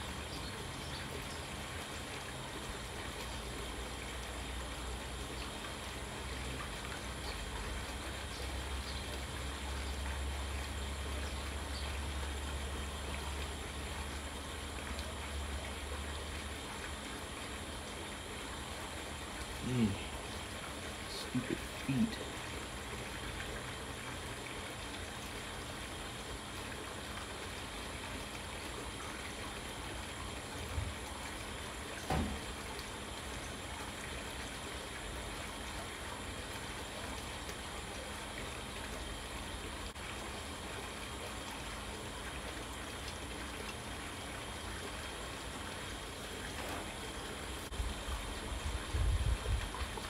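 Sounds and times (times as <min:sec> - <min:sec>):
faint steady hum: 0:00.0 - 0:50.0
background hiss: 0:16.7 - 0:24.0.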